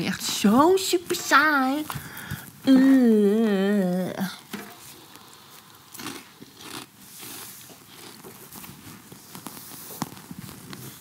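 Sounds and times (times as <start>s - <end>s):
potato chips crunching: 5.4s - 8.7s.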